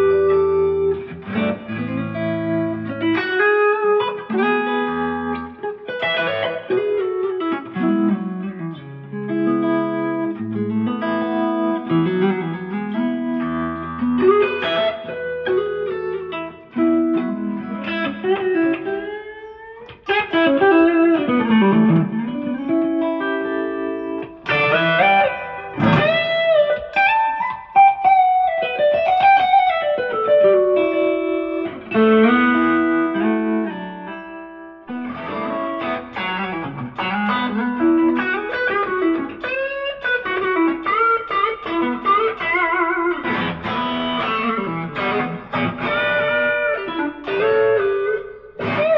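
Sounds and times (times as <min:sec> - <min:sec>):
electric guitar lead line: 0:00.0 - 0:48.9.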